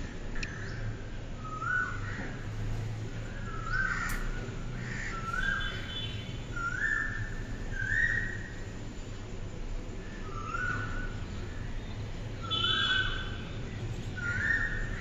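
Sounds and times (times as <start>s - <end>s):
bird calling: 3.3s - 8.6s, 12.4s - 15.0s.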